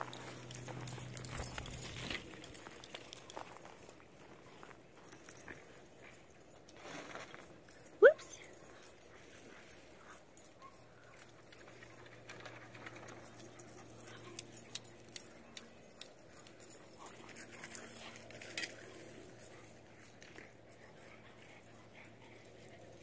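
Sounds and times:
collar tags jingling: 0.0 - 23.0.

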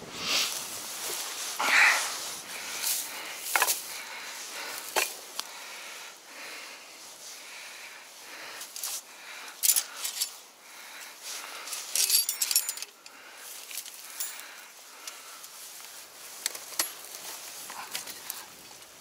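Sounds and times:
rustling of dry leaves: 0.0 - 19.0
metal trap jaws clinking: 12.0 - 13.0.

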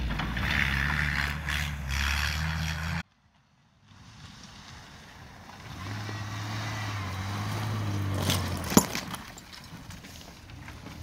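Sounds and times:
car engine driving through mud: 3.9 - 11.0.

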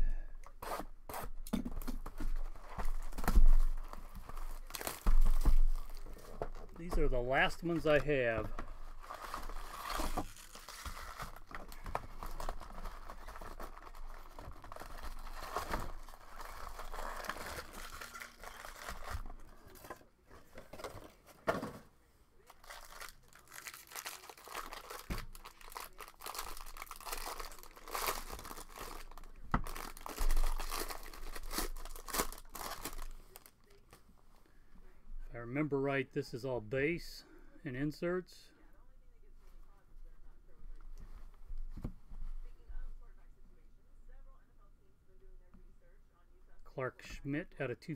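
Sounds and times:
foil wrappers crinkling: 1.7 - 20.0, 22.4 - 33.8
foil pack tearing open: 9.0 - 19.3, 22.5 - 33.5.

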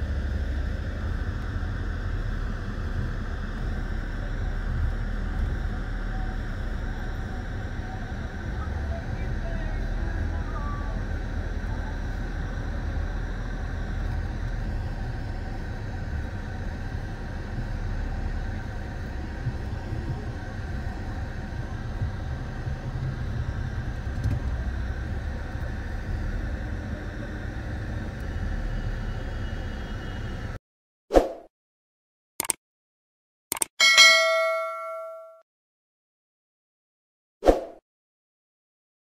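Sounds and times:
highway traffic rumble: 0.0 - 30.6.

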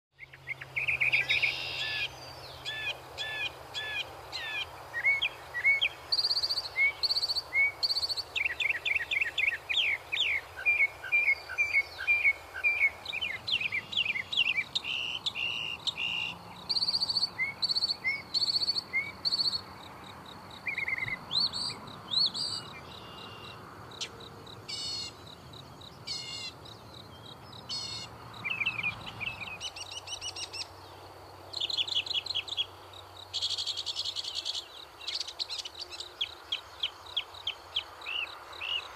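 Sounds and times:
mockingbird singing: 0.2 - 19.7, 20.6 - 24.1, 24.7 - 30.9.

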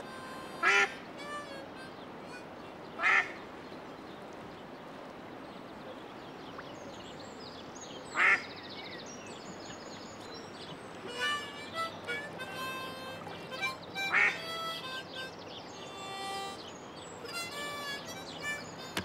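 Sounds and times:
steady low hiss: 0.0 - 19.0
duck quacking: 12.1 - 14.8.

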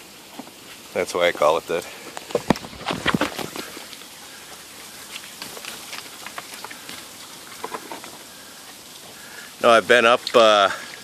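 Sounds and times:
water trickling down rock: 0.0 - 11.0
sharp water drips: 3.4 - 11.0.

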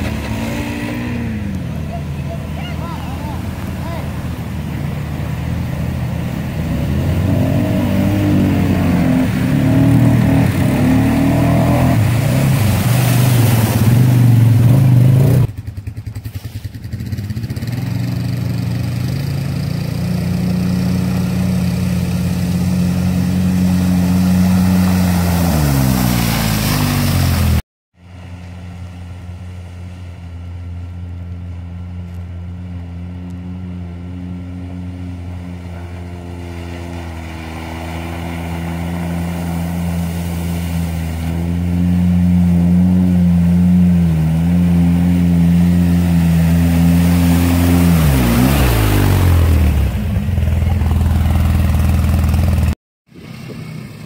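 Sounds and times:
quiet engine droning: 0.0 - 16.2, 28.0 - 54.0
engine running steadily: 0.0 - 25.4, 26.6 - 54.0
atv engine revving: 0.0 - 27.6, 30.4 - 54.0
vehicle driving through water: 0.0 - 54.0.

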